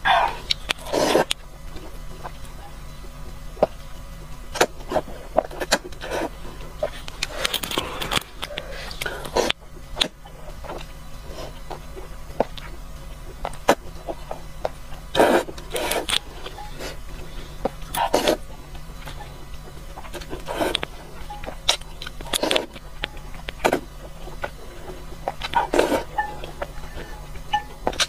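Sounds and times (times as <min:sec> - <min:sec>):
slurping noodles: 0:00.1 - 0:01.3, 0:15.1 - 0:18.5, 0:20.2 - 0:20.9, 0:22.2 - 0:22.8, 0:23.6 - 0:26.1.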